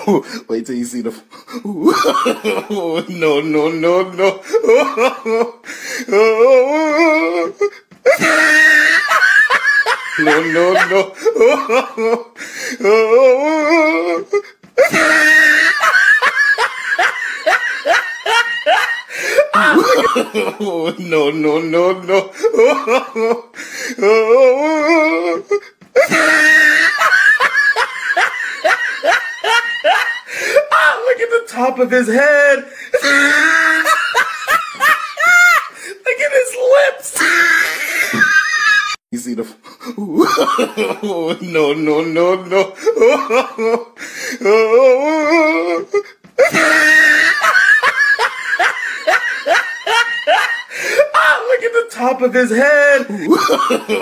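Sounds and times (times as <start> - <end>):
person laughing hard: 1.7 - 31.1, 32.9 - 36.0, 37.2 - 39.0, 40.0 - 51.5, 53.1 - 54.0
warbling laughter: 8.1 - 11.6, 26.0 - 30.3, 46.5 - 50.7.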